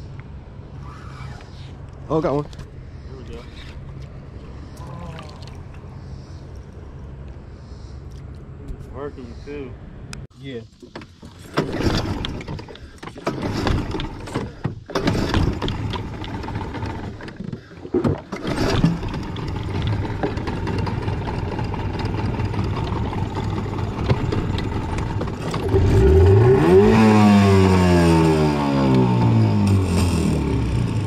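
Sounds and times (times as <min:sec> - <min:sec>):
small outboard motor running: 0:11.6 - 0:31.0.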